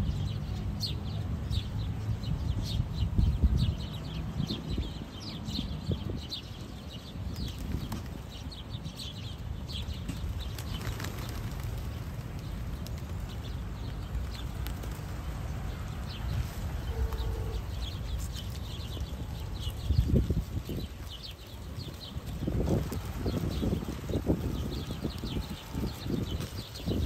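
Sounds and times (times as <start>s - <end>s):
sparrows chirping: 0.0s - 27.0s
pigeon wings flapping: 10.2s - 17.7s, 20.2s - 27.0s.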